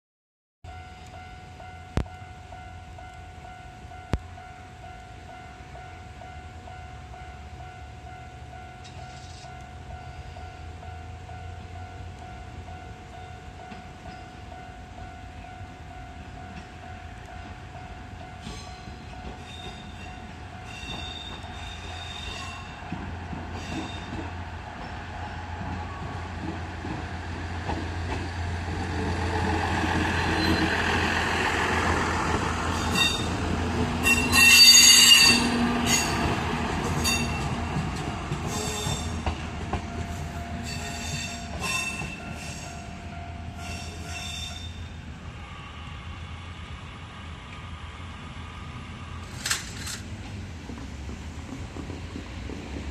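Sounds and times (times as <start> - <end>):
diesel train engine rumble: 1.0 - 52.9
train wheels squealing and clicking: 18.3 - 25.0, 30.2 - 31.0, 32.7 - 33.4, 34.0 - 42.9.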